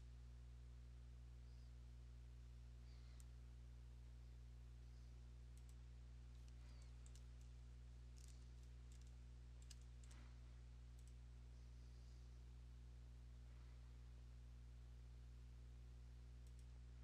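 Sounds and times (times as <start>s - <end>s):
low electrical hum: 0.0s - 17.0s
faint sharp clicks: 5.5s - 5.8s, 6.4s - 7.6s, 16.4s - 16.8s.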